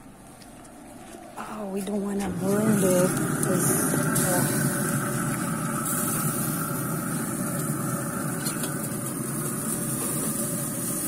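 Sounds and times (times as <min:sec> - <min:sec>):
grill mechanical hum: 0:00.0 - 0:11.0
steaks sizzling on grill: 0:02.4 - 0:11.0.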